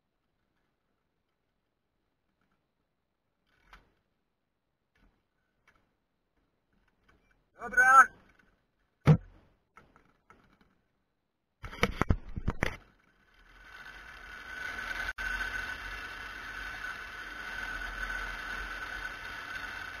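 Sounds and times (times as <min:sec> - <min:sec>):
wheels rolling on wire: 0:03.4 - 0:04.1, 0:11.7 - 0:20.0.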